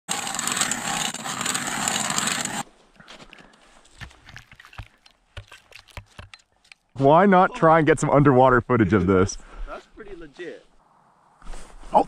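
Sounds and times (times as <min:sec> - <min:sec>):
ice auger grinding into ice: 0:00.1 - 0:02.6.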